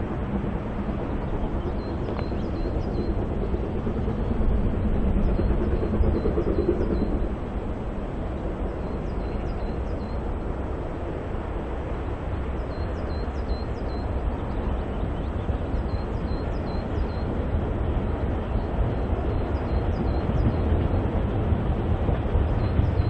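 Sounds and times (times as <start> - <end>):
distant steam locomotive rumble: 0.0 - 23.0.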